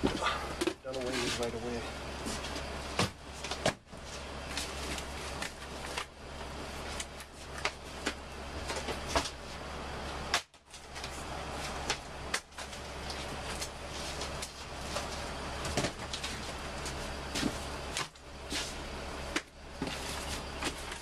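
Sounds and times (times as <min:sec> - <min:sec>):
steady low hum: 0:00.0 - 0:21.0
books dropping into plastic bins: 0:14.9 - 0:18.7.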